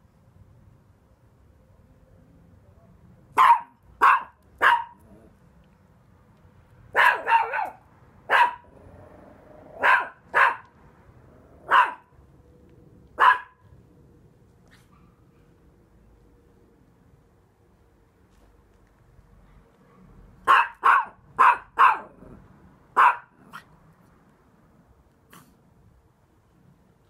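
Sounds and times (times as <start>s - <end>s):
small dog barking: 3.3s - 5.3s, 6.9s - 8.8s, 9.7s - 10.7s, 11.6s - 12.1s, 13.2s - 13.7s, 19.8s - 23.7s.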